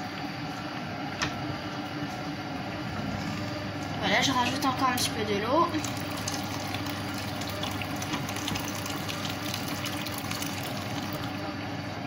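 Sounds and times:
water pouring into pot: 0:05.7 - 0:11.4.

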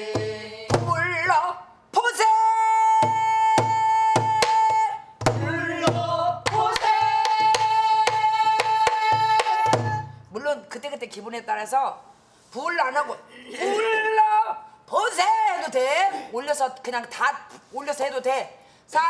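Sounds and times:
barrel drum beat: 0:00.0 - 0:01.3, 0:03.0 - 0:10.2
woman singing: 0:02.9 - 0:10.2.

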